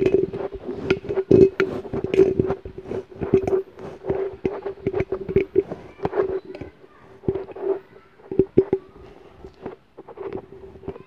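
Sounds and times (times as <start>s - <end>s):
microphone handling rubbing and knocking: 0.0s - 11.0s
steady hum: 0.0s - 11.0s.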